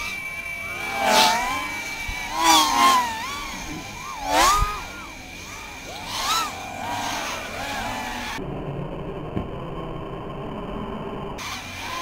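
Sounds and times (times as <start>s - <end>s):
quadcopters whining past: 0.0s - 12.0s.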